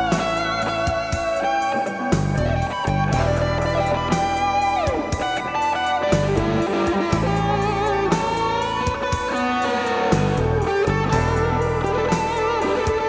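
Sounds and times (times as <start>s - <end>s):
drum-machine beat: 0.0s - 13.0s
synthesizer guitar-like lead line: 0.0s - 13.0s
held bass notes: 2.2s - 9.3s, 10.1s - 13.0s.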